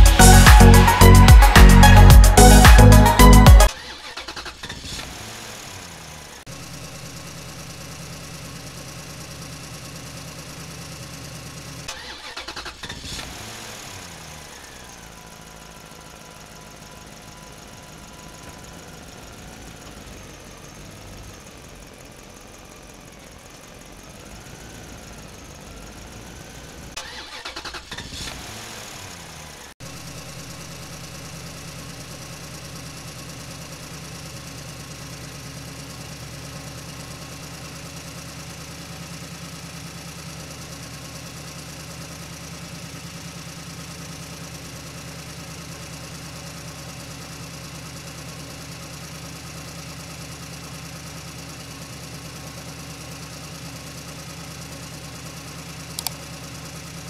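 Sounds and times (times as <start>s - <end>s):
short clicks: 56.0s - 56.2s.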